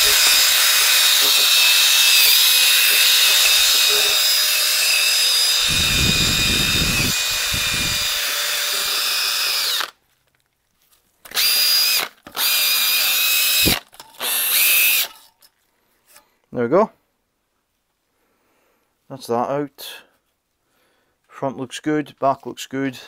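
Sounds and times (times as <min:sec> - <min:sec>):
wire brush scrubbing metal: 0:00.0 - 0:09.7
cordless drill whining: 0:00.0 - 0:10.0, 0:11.3 - 0:15.2.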